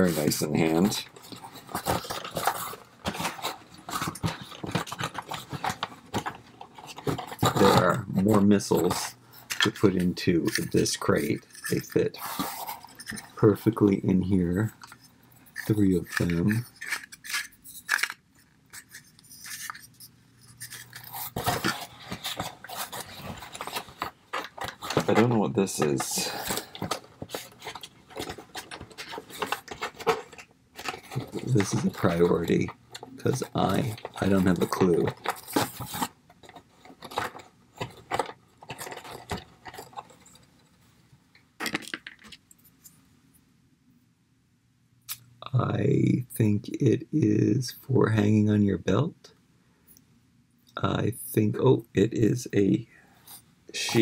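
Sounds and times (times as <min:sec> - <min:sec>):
cardboard rustling: 0:00.0 - 0:40.8
plastic toy pieces clicking: 0:15.6 - 0:19.9.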